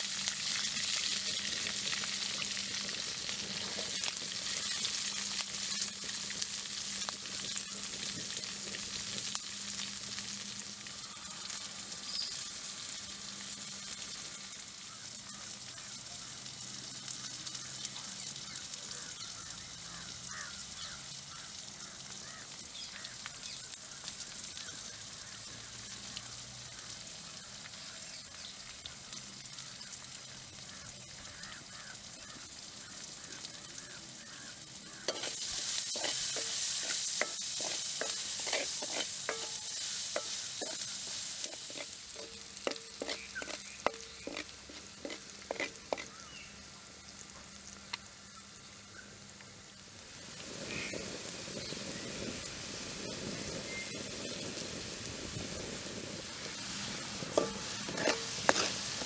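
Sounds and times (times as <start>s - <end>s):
food sizzling in a wok: 0.0s - 59.0s
liquid bubbling in hot oil: 0.0s - 59.0s
spatula scraping a pan: 35.0s - 46.2s, 56.4s - 59.0s.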